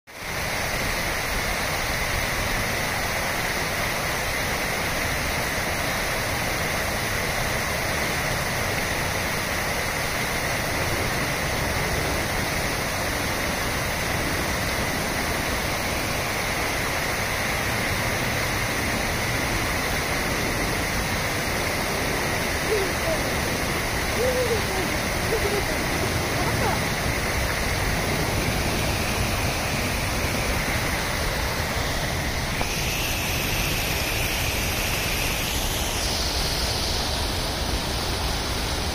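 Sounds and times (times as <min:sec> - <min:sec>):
rapids over rocks: 0:00.1 - 0:38.9
waterfall rushing: 0:00.1 - 0:38.9.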